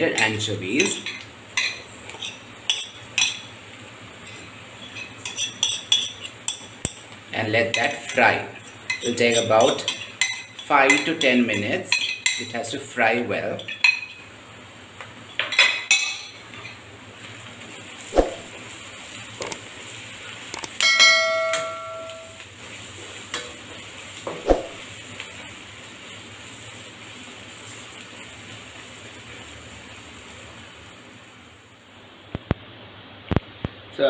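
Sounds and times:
fish sizzling in oil: 0.0 - 32.2
ringing metal clang: 20.8 - 22.4.

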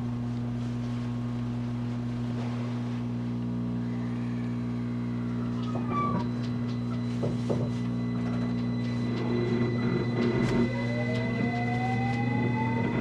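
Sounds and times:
traction motor hum and tones: 5.1 - 13.0.

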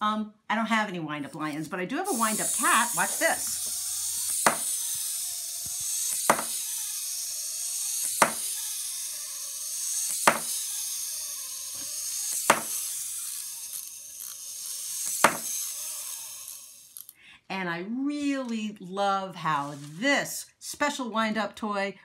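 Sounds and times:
clockwork toy whirring: 1.3 - 17.2, 19.6 - 20.0
toy clacking on wooden table: 2.1 - 7.3, 8.0 - 8.6, 10.0 - 10.6, 11.8 - 15.7.

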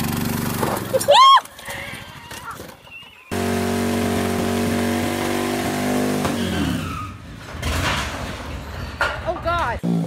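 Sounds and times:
tire spinning on concrete: 0.0 - 8.2
motorcycle engine revving: 3.3 - 6.8.

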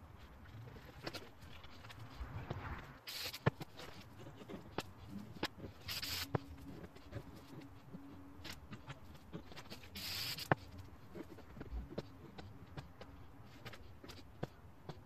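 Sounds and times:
scratchy rustling: 0.0 - 15.0
spray paint can hissing: 3.0 - 3.6, 5.8 - 6.4, 10.0 - 10.6.

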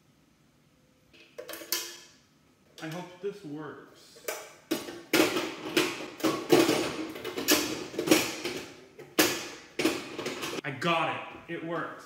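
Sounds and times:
metal pan clunking and rattling: 4.7 - 10.6.

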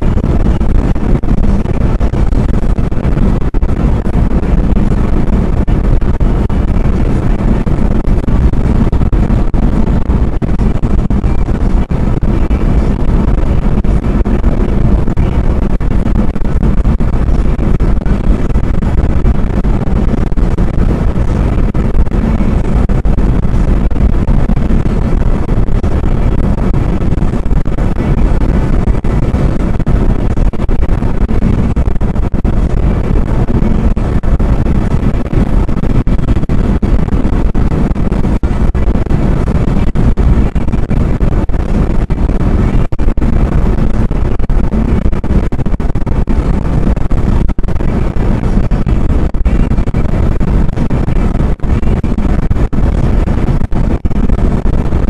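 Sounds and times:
engine drone: 0.0 - 55.0
tyre and road noise: 0.0 - 55.0
wind noise: 0.0 - 55.0.

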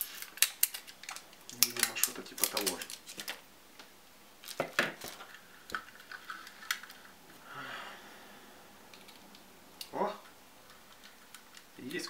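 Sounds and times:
plastic parts clicking: 0.0 - 3.4
soft hiss: 0.0 - 12.0.

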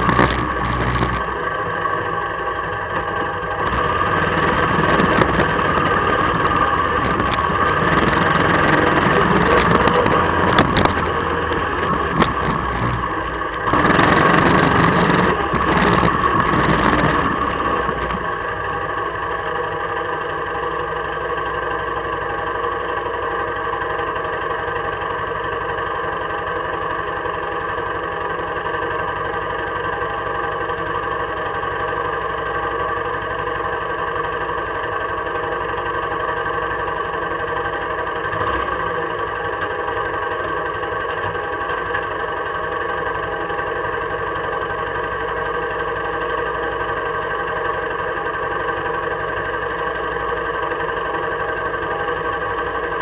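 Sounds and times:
atv engine running: 0.0 - 53.0
wind noise: 3.7 - 18.4.

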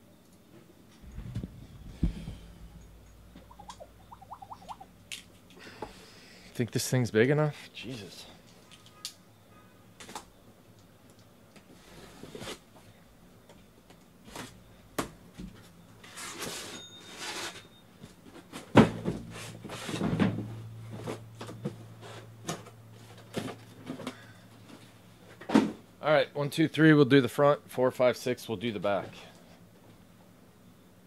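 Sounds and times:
boxes set down with thump: 18.6 - 20.5.

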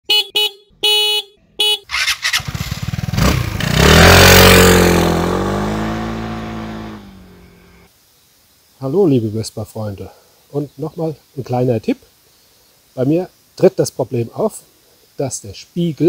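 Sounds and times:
scooter engine passing by: 1.9 - 7.9.

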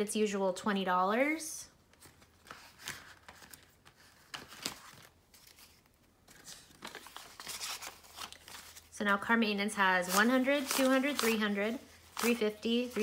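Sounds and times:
paper and plastic crinkling: 2.0 - 8.9, 10.0 - 13.0.

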